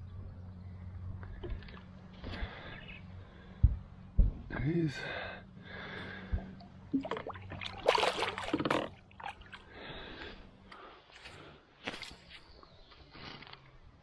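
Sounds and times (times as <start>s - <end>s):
small water sounds and knocks: 6.2s - 9.7s
fish splashing into water: 6.9s - 9.7s.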